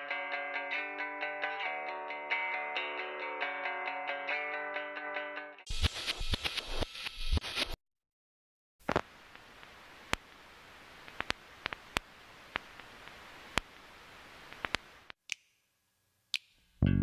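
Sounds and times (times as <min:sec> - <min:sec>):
sharp clicks and pops: 0:08.8 - 0:10.4, 0:11.0 - 0:13.9, 0:14.5 - 0:15.6
faint steady hiss: 0:08.8 - 0:16.8.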